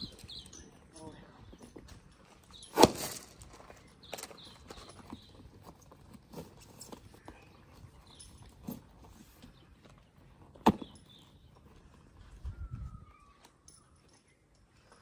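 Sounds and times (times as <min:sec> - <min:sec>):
stirrup and buckle clinks: 0:00.0 - 0:09.6, 0:10.8 - 0:11.8.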